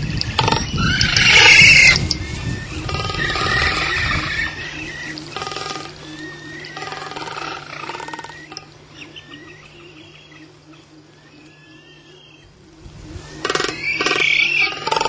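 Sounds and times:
frigatebird rattling warbles: 0:00.0 - 0:08.7, 0:13.2 - 0:15.0.

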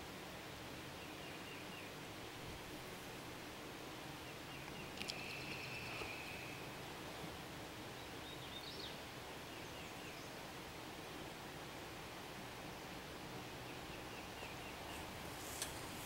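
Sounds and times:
faint outdoor background noise: 0:00.0 - 0:16.0
bird calling: 0:04.5 - 0:06.8.

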